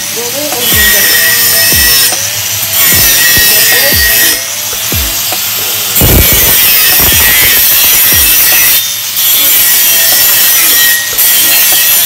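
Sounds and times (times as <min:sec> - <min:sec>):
grinder grinding metal: 0:00.0 - 0:12.0
background music with thumping beat: 0:00.4 - 0:09.0.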